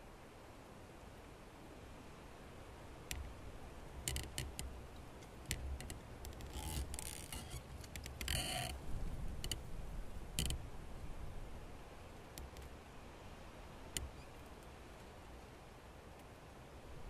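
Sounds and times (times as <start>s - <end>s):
sharp little clicks and ticks: 4.1s - 8.8s.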